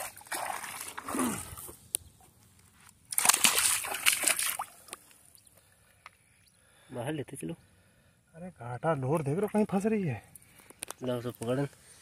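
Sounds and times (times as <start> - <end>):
fish flapping and splashing: 3.1 - 4.8.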